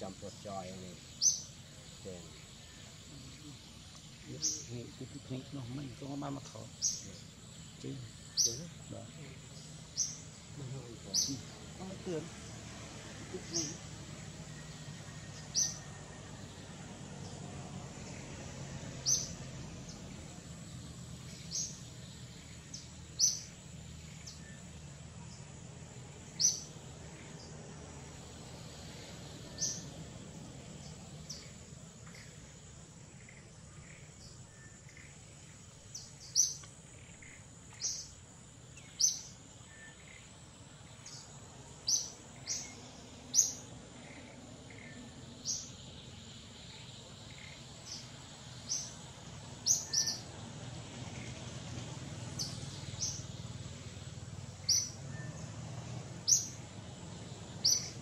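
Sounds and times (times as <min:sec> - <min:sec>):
birds chirping: 0:00.0 - 0:58.0
faint steady hiss: 0:00.0 - 0:58.0.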